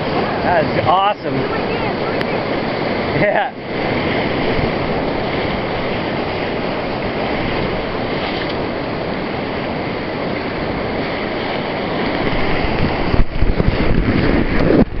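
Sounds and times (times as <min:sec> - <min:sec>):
river rapids rushing: 0:00.0 - 0:15.0
wind rumbling on microphone: 0:00.0 - 0:15.0.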